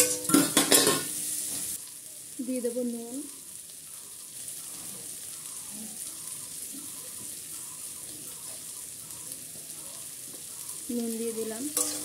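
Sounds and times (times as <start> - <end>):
onion and garlic sizzling in oil: 0.0 - 12.0.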